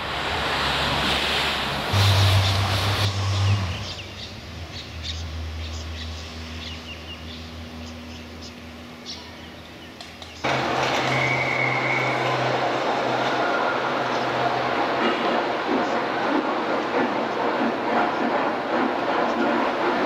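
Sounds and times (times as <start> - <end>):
rumble and hiss: 0.0 - 10.8
small birds chirping: 3.4 - 10.5.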